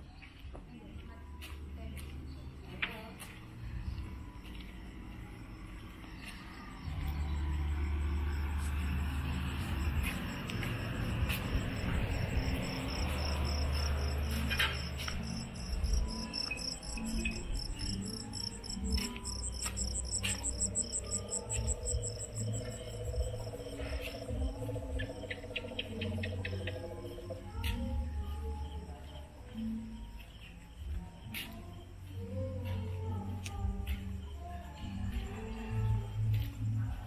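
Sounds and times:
crickets chirping: 2.5s - 37.0s
steady low rumble: 3.4s - 28.2s.

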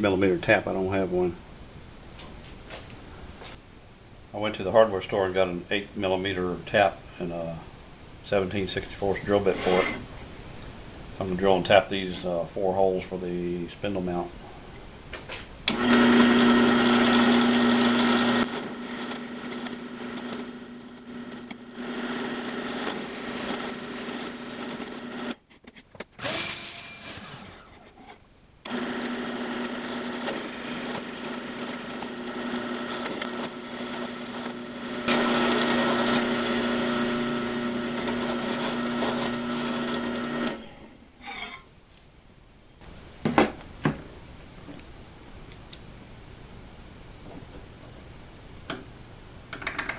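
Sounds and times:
drill press drilling aluminium: 15.7s - 25.4s, 28.7s - 40.6s.

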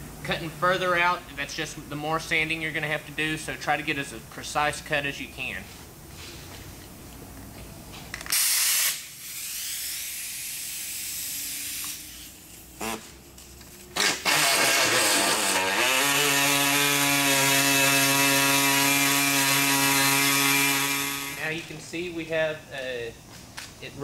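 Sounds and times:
air-powered cutting tool: 8.2s - 13.2s, 14.0s - 21.6s.

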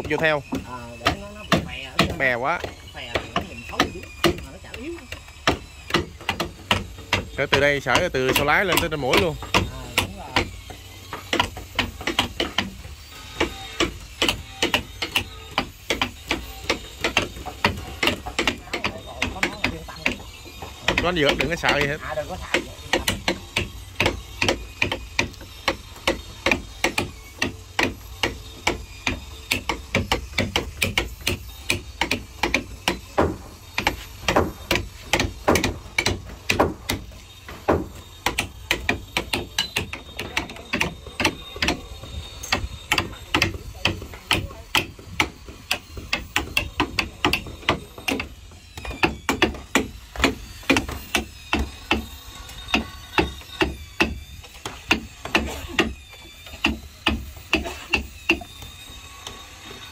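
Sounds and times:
hammer blows on wooden planking: 0.0s - 59.9s.

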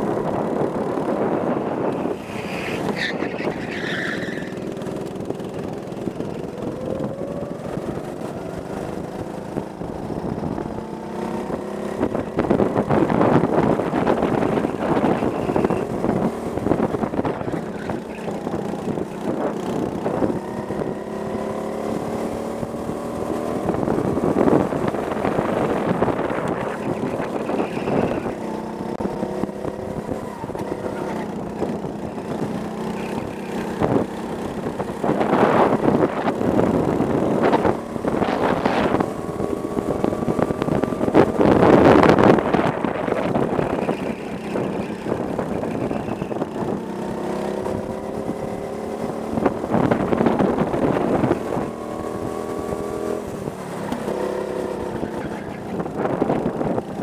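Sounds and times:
go-kart engine accelerating: 0.0s - 57.0s
wind buffeting microphone: 0.0s - 57.0s.

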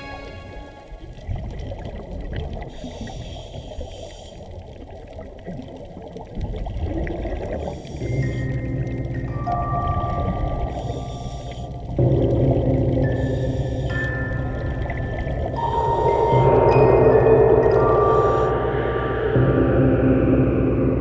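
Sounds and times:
underwater bubbles gurgling: 0.0s - 21.0s
low drone with held tones: 7.7s - 21.0s.

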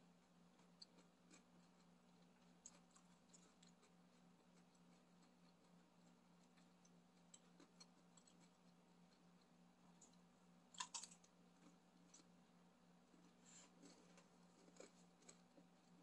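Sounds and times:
low steady hum: 0.0s - 16.0s
wet chewing: 0.2s - 12.4s, 13.2s - 16.0s
crisp crunches of fried food: 10.7s - 12.3s.

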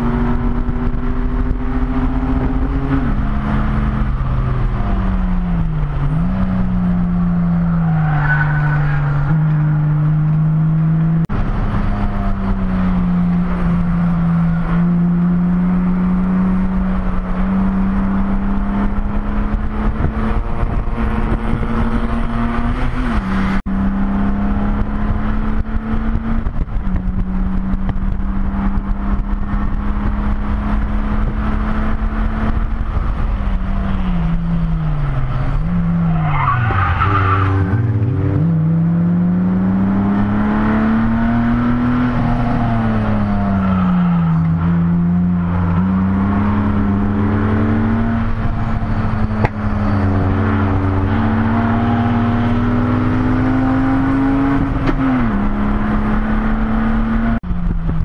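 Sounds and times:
race car engine revving: 0.0s - 58.0s
tyre squeal: 7.7s - 9.5s, 35.6s - 38.2s, 49.0s - 52.0s.

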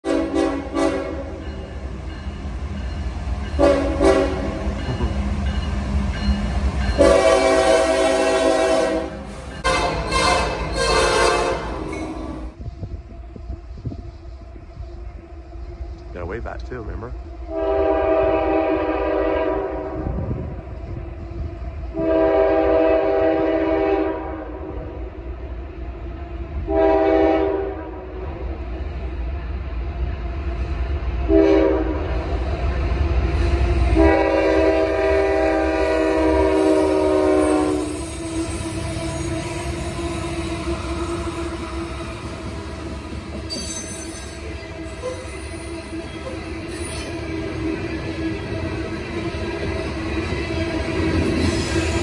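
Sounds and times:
train air horn blasts: 0.0s - 1.4s, 3.6s - 4.6s, 7.0s - 12.5s, 17.5s - 20.4s, 21.9s - 25.0s, 26.7s - 28.2s, 31.3s - 32.1s, 33.9s - 41.8s
train rumbling: 0.0s - 52.0s.

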